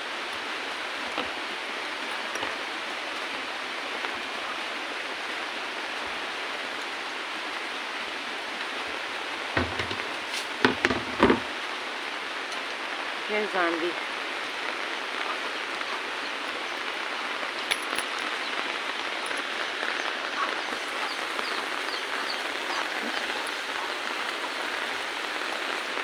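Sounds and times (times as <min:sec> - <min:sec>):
rain on foliage: 0:00.0 - 0:26.0.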